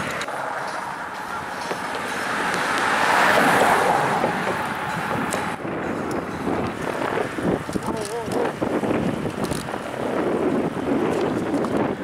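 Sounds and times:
car driving past: 0:00.0 - 0:07.5.

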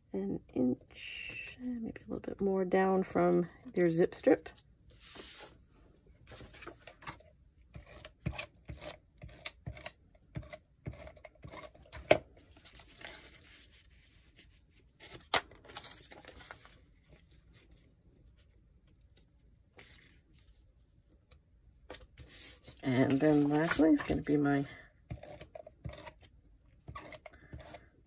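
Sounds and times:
paper sliding and shuffling: 0:04.9 - 0:05.6, 0:06.3 - 0:07.2, 0:19.8 - 0:20.6, 0:21.9 - 0:24.2.

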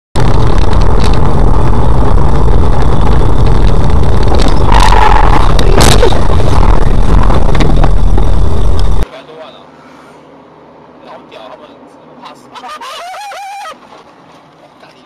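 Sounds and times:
loud distorted vehicle noise: 0:00.2 - 0:15.0.

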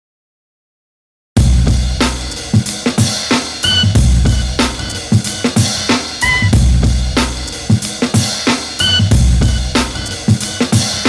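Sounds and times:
deep bass: 0:01.4 - 0:02.6, 0:03.7 - 0:05.2, 0:06.2 - 0:07.7, 0:08.8 - 0:10.3
kick and snare drum beat: 0:01.4 - 0:11.0
high electronic tone: 0:03.6 - 0:04.6, 0:06.2 - 0:06.6, 0:08.8 - 0:09.8.

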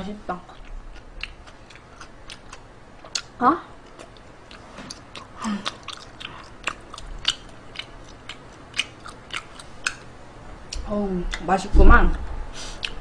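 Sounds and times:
person chewing food: 0:00.5 - 0:10.1, 0:12.6 - 0:13.0.

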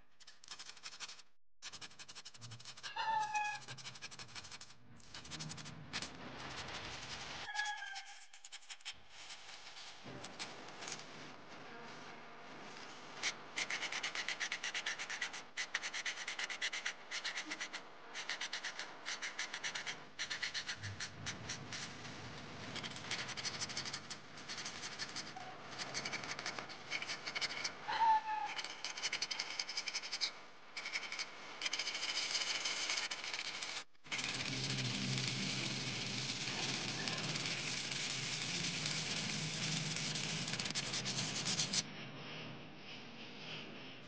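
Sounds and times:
sandpaper scraping metal: 0:34.1 - 0:41.8.

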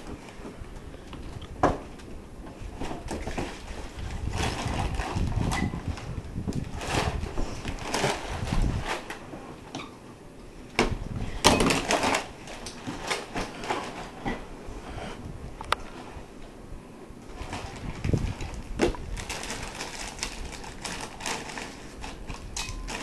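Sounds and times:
objects rustling and clattering: 0:00.0 - 0:10.0, 0:10.6 - 0:16.6, 0:17.2 - 0:23.0
camera handling rumble: 0:17.4 - 0:23.0.

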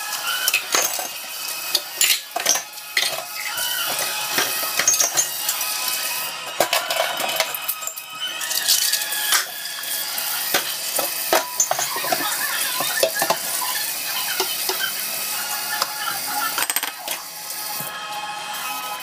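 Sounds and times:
faucet running into steel sink: 0:00.0 - 0:06.3, 0:07.4 - 0:17.9
dishes clinking and rattling: 0:00.2 - 0:05.8, 0:06.5 - 0:09.6, 0:10.5 - 0:15.0, 0:15.7 - 0:17.3.

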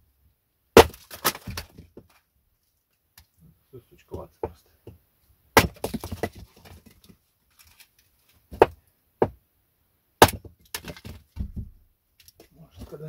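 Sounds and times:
hatchet chopping firewood: 0:00.8 - 0:01.8, 0:05.6 - 0:06.9, 0:08.5 - 0:09.4, 0:10.2 - 0:11.7.

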